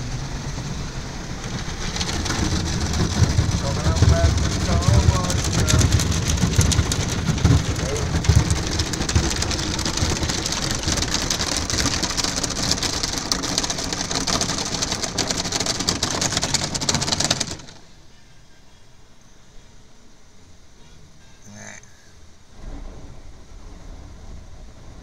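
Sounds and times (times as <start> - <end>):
water jets spraying on car: 0.0 - 17.8.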